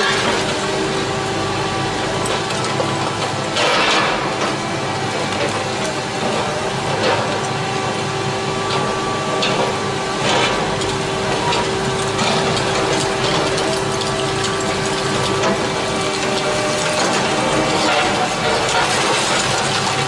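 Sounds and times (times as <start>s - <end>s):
excavator running: 0.0s - 20.0s
masonry crunching and cracking: 10.2s - 20.0s.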